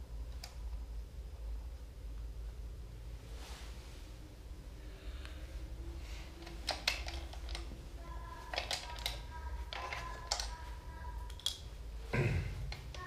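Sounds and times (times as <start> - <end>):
metallic clicks and taps: 11.3 - 11.6.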